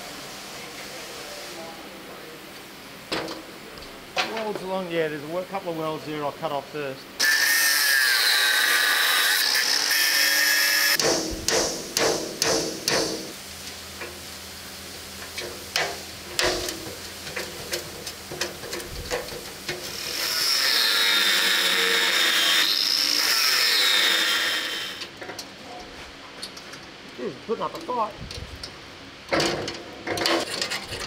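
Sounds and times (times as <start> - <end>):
angle grinder cutting: 7.2 - 11.0, 19.8 - 25.1
metal knocks and clanks: 29.3 - 31.0.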